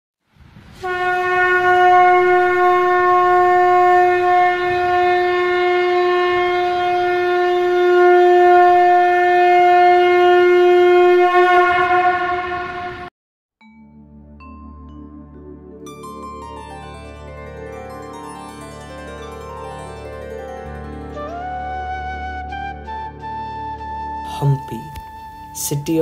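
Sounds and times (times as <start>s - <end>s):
conch shell blown: 0.8s - 13.1s, 18.4s - 24.3s.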